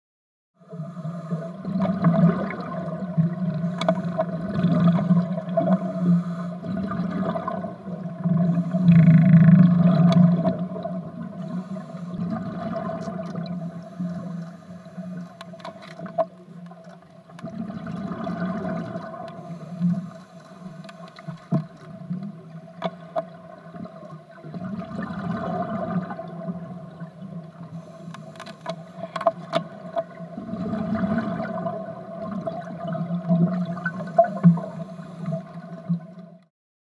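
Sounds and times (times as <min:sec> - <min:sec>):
underwater bubbling rushing water: 0:00.6 - 0:16.2, 0:16.8 - 0:36.4
steady low hum: 0:10.6 - 0:15.5.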